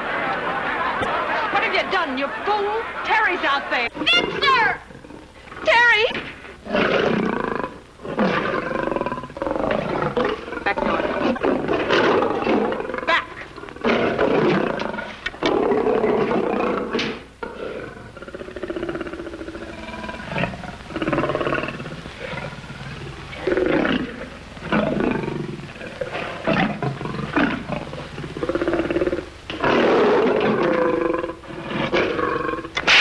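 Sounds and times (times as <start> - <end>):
lion roaring: 6.6 - 33.0.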